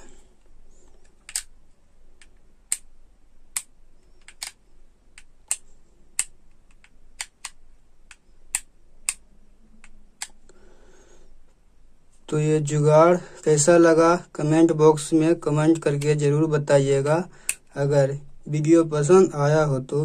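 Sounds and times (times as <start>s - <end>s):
sharp plastic clicks and taps: 1.2s - 1.5s, 2.2s - 2.9s, 3.5s - 4.6s, 5.2s - 9.2s, 17.4s - 17.7s.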